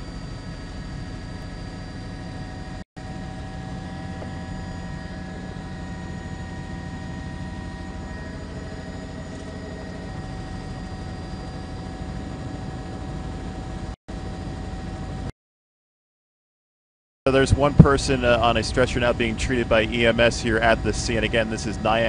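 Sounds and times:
helicopter engine and rotors drone: 0.0s - 15.3s, 17.3s - 22.0s.

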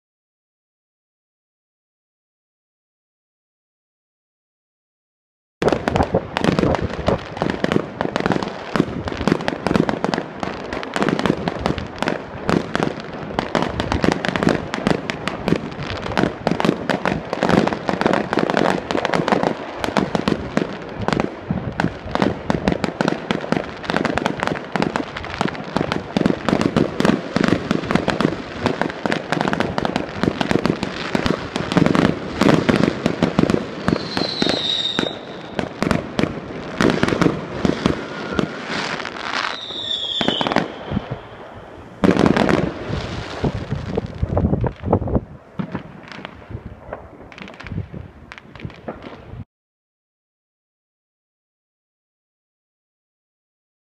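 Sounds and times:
fireworks bangs and crackles: 5.6s - 49.4s
falling firework whistle: 33.7s - 43.5s.

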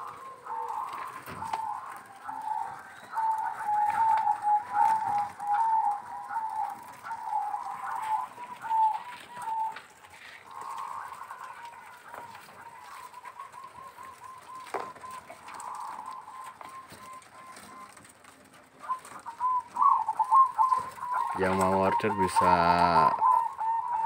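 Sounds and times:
doves cooing: 0.0s - 24.0s.

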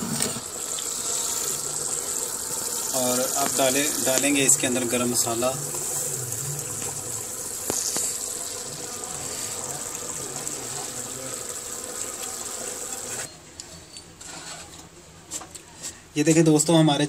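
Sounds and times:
curry bubbling in a pot: 0.2s - 13.3s.

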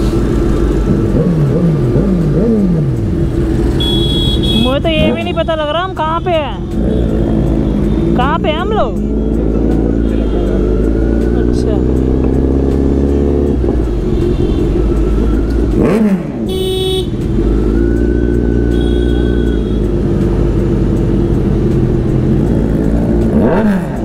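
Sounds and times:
motorcycle engine revving: 0.0s - 24.0s
horn honk: 3.6s - 8.6s, 9.2s - 11.0s, 14.0s - 15.1s, 15.8s - 17.5s, 18.5s - 20.1s.

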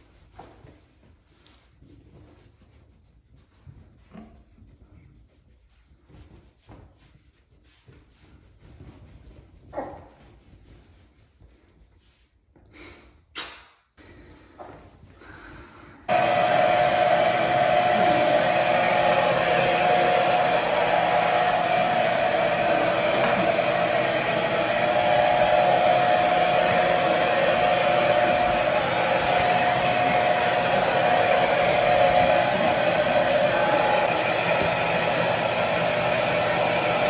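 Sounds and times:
hair dryer blowing: 15.9s - 37.0s.

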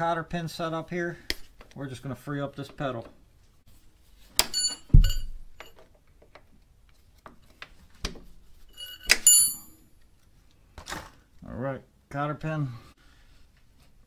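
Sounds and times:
low thump: 4.9s - 5.4s
metal pliers clinking: 8.8s - 10.0s.

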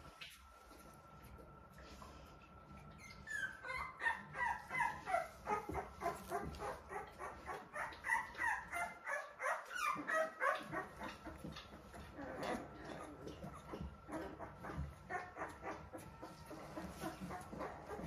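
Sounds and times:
puppy crying in high squeals: 3.0s - 11.0s.

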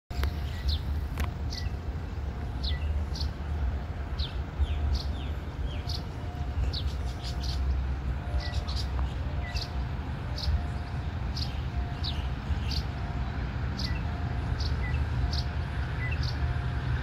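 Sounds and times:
steady low rumble: 0.1s - 17.0s
small birds chirping: 4.2s - 16.5s.

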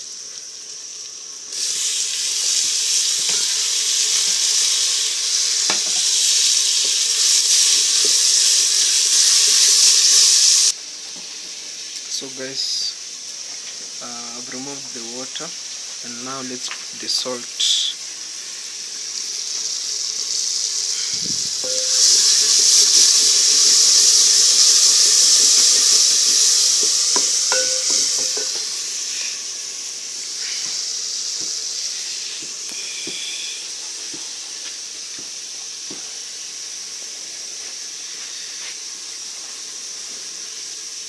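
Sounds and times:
food sizzling in a pot: 0.0s - 41.0s
fire crackling: 0.1s - 10.8s, 18.1s - 39.2s.

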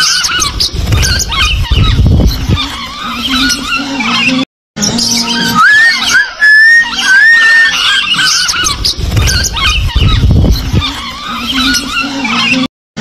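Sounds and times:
wings fluttering: 0.0s - 3.8s, 5.4s - 12.4s
birds chirping squeakily: 0.0s - 12.7s
bird whistle: 5.0s - 10.3s.

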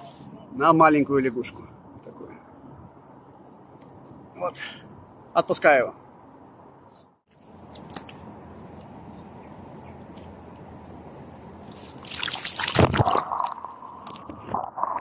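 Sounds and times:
fish splashing in water: 11.7s - 13.8s.

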